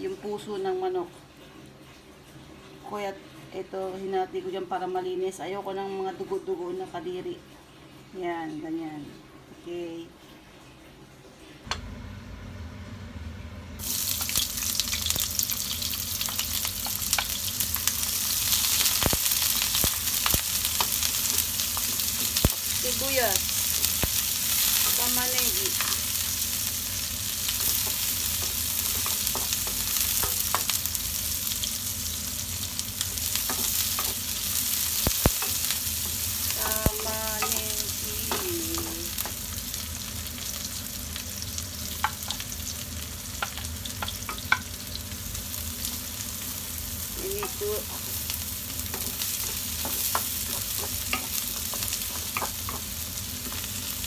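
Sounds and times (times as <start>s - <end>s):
onions sizzling in oil: 13.7s - 54.0s.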